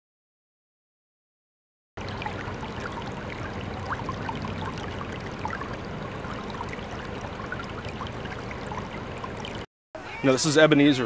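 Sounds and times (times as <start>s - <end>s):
water dripping: 2.0s - 9.7s
floodwater flowing and trickling: 2.0s - 11.0s.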